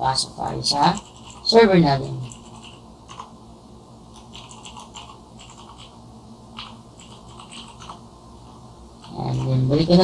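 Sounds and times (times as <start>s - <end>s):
low steady hum: 0.0s - 10.0s
keyboard keys clicking: 4.2s - 5.9s, 6.6s - 8.0s.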